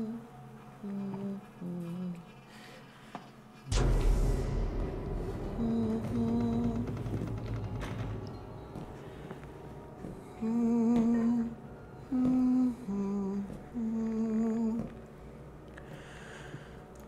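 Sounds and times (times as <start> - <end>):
person humming slow tune: 0.0 - 2.6, 10.1 - 15.9.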